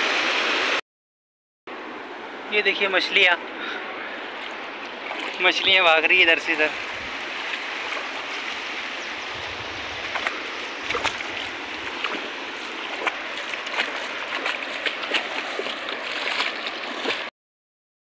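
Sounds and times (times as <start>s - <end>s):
river water flowing: 0.0s - 0.8s, 1.7s - 17.3s
small water splashes: 3.4s - 17.3s.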